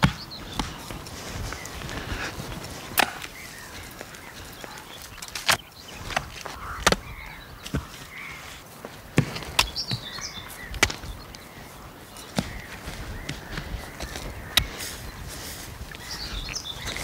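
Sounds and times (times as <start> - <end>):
coconuts knocking together: 4.6 - 8.3, 9.1 - 11.2.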